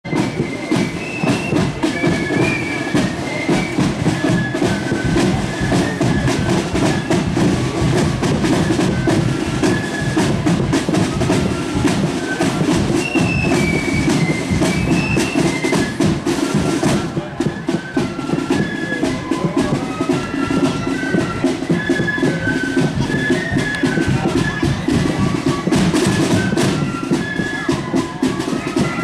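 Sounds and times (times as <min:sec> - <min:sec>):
flute melody: 0:00.1 - 0:29.0
snare and bass drums beat: 0:00.1 - 0:29.0.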